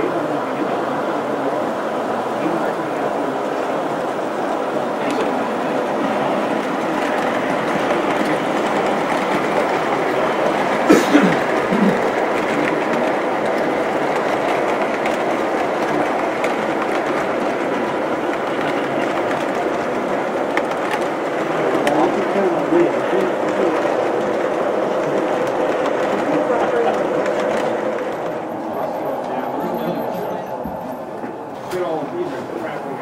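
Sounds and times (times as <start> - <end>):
model train wheels rumbling on rails: 0.0 - 33.0.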